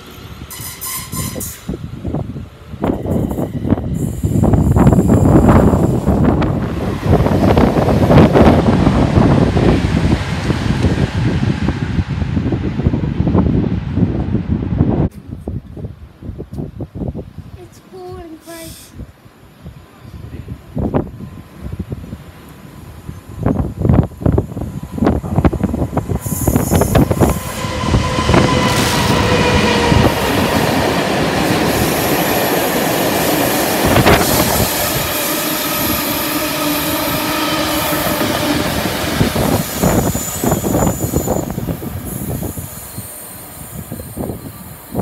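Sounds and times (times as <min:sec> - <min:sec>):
wheels squealing on rails: 0:00.0 - 0:01.8, 0:02.8 - 0:06.6, 0:22.6 - 0:45.0
diesel locomotive engine: 0:00.0 - 0:17.5, 0:18.4 - 0:45.0
wind buffeting microphone: 0:01.2 - 0:17.8, 0:18.9 - 0:45.0.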